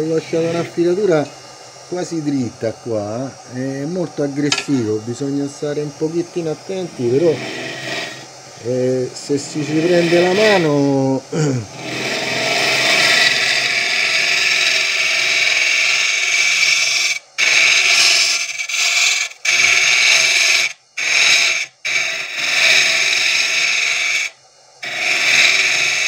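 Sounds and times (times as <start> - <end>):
lathe tool scraping wood: 0.0 - 26.0.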